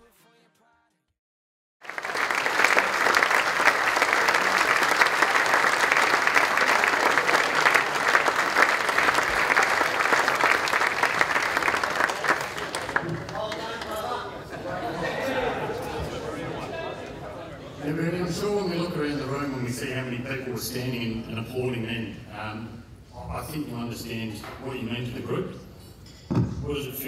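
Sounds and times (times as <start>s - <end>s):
audience applause: 1.8s - 14.4s.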